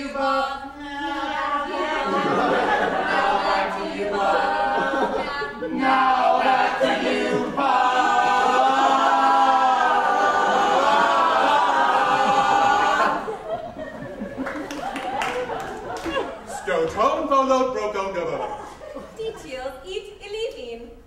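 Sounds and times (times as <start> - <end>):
choir singing unaccompanied: 0.0 - 14.3.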